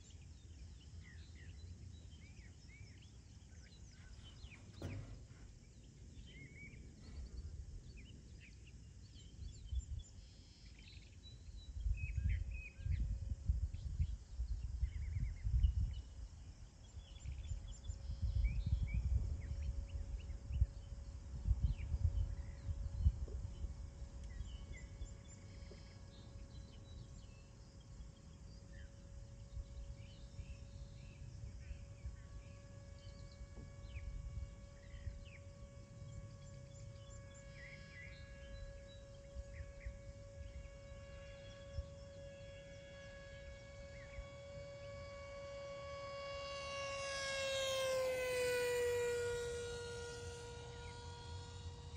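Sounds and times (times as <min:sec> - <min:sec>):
birds chirping: 0:00.0 - 0:13.2, 0:13.8 - 0:51.9
faint steady hum: 0:00.0 - 0:51.9
wind buffeting microphone: 0:11.6 - 0:25.4.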